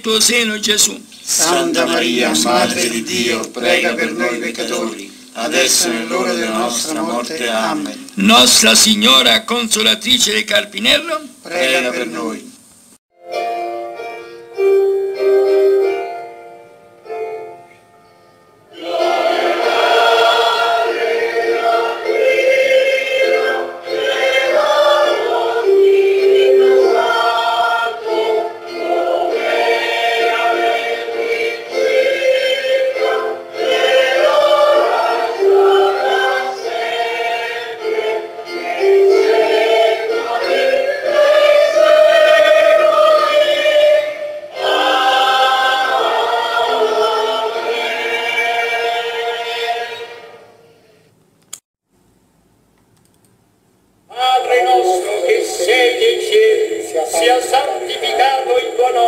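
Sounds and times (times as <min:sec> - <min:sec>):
choir singing a slow hymn: 0:01.2 - 0:08.1, 0:18.7 - 0:51.0, 0:54.7 - 0:59.0.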